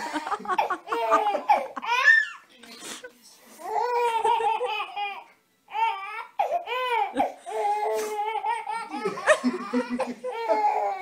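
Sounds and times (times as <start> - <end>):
baby laughing and squealing: 0.0 - 2.4.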